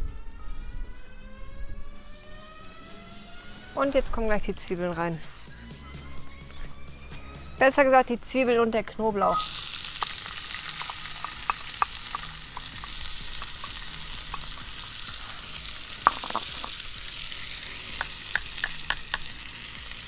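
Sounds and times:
onions sizzling in fat: 0:01.8 - 0:03.8, 0:09.3 - 0:20.0.

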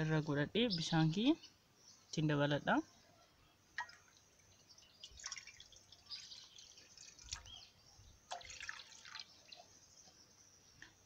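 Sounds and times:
water poured into a skillet: 0:05.0 - 0:07.6, 0:08.3 - 0:09.7.

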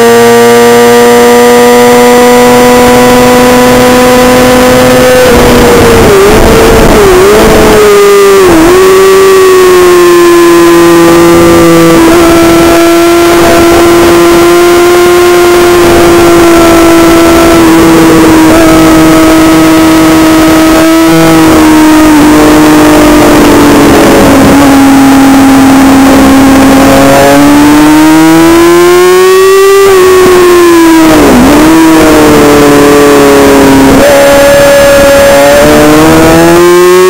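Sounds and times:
motorcycle engine at high revs: 0:00.0 - 0:37.0
wind rush: 0:05.1 - 0:08.7.

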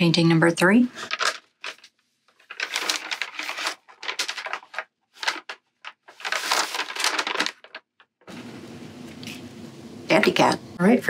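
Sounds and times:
paper bag crinkling and rustling: 0:01.0 - 0:08.3.

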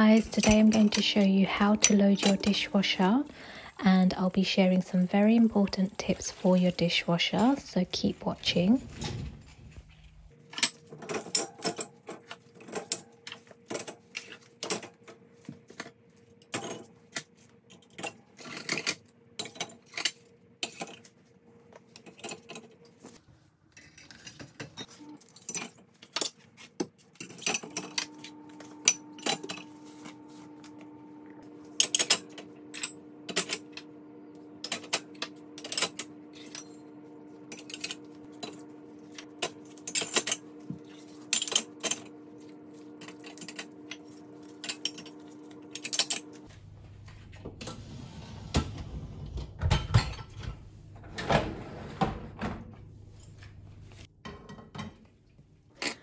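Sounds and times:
dishes clinking in dishwasher rack: 0:00.0 - 0:03.2, 0:10.5 - 0:15.0, 0:48.6 - 0:52.7, 0:54.2 - 0:55.0.

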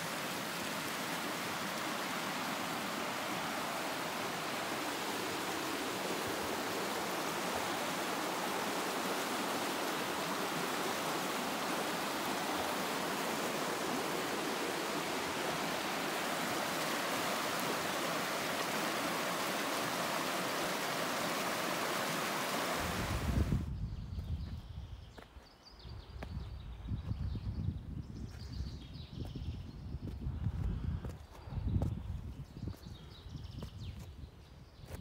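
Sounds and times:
stream rushing over rocks: 0:00.0 - 0:23.6.

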